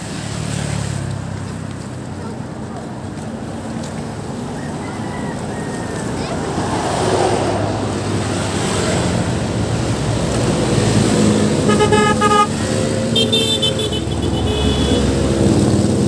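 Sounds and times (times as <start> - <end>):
road traffic passing: 0.0 - 16.0
vehicle horns honking: 11.6 - 15.4.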